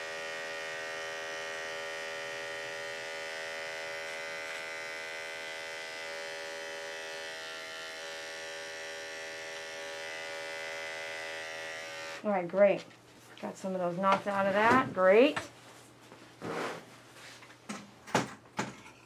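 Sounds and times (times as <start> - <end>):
electric clippers buzzing: 0.0 - 12.3.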